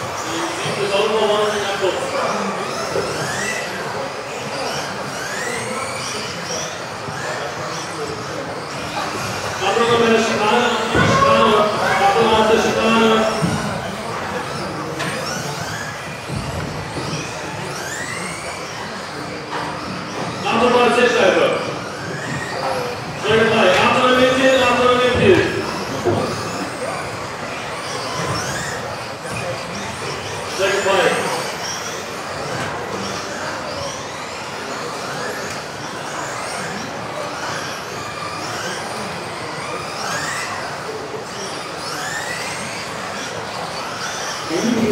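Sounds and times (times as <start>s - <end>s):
rc car motors whining: 0.0s - 44.9s
thump: 10.9s - 11.3s.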